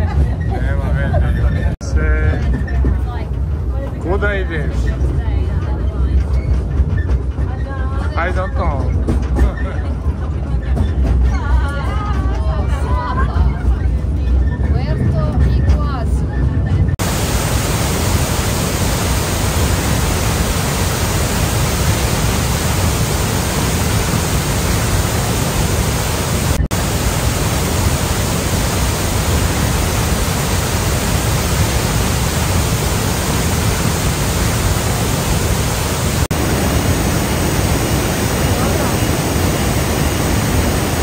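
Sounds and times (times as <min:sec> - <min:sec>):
waterfall roaring: 0:17.0 - 0:41.0.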